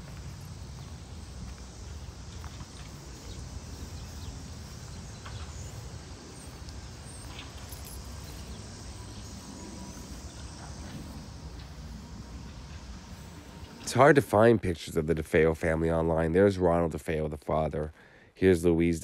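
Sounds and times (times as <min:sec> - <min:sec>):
faint chirps: 0:00.0 - 0:14.0
soft footsteps on grass: 0:00.0 - 0:14.5
low steady rumble: 0:00.0 - 0:16.5.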